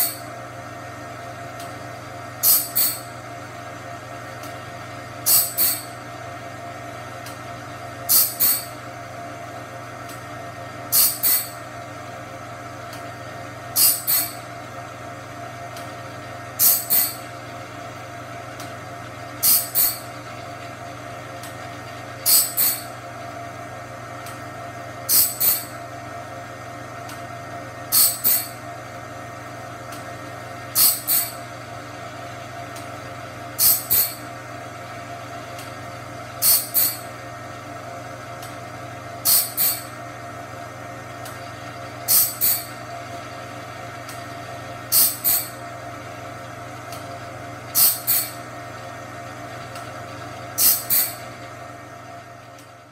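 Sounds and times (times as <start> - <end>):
motor hum: 0.0 - 52.9
high-pitched grinding hisses: 36.4 - 37.0.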